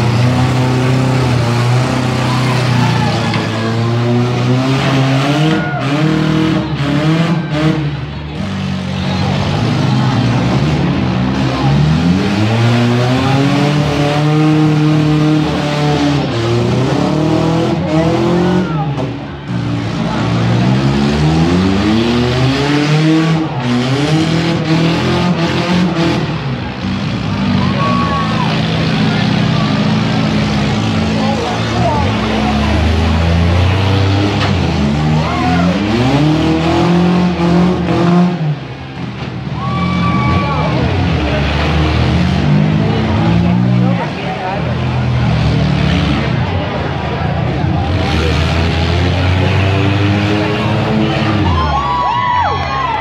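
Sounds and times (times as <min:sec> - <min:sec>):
car engines revving: 0:00.0 - 0:53.0.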